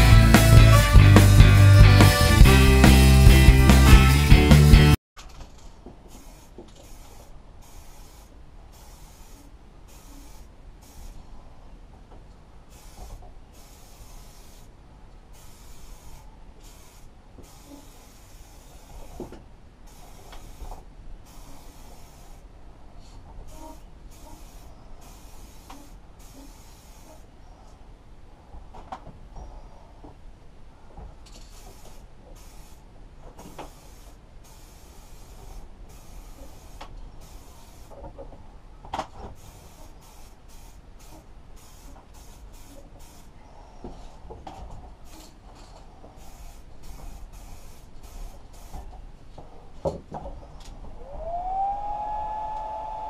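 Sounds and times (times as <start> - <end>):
spray paint can hissing: 6.1 - 11.2, 12.7 - 14.8, 15.4 - 19.2, 19.9 - 22.4, 23.5 - 27.2, 31.3 - 32.8, 33.4 - 38.0, 39.4 - 43.3, 45.0 - 49.0.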